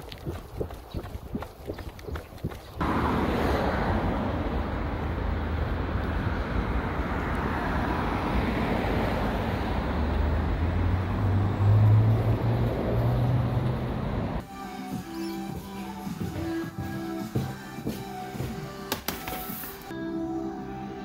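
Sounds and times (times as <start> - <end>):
street traffic noise: 0.0 - 21.0
bus engine drone: 2.8 - 14.5.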